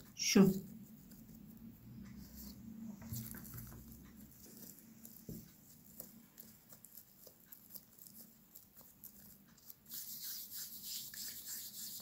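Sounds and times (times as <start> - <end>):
hands rubbing dough: 0.0 - 12.0.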